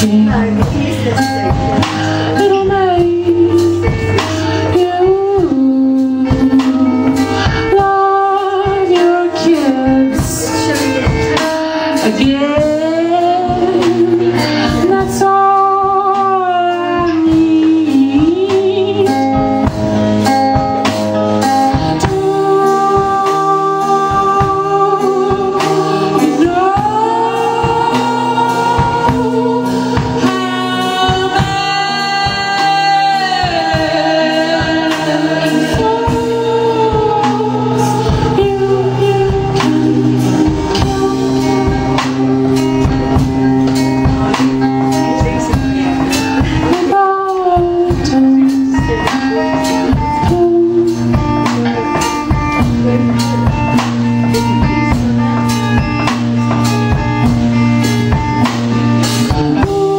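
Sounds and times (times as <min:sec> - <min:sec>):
instrumental accompaniment: 0:00.0 - 0:59.9
person singing: 0:00.0 - 0:59.9.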